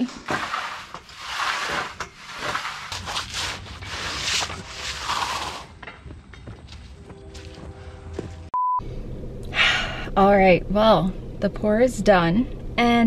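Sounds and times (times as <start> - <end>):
metal float scraping wet concrete: 0.0 - 5.9.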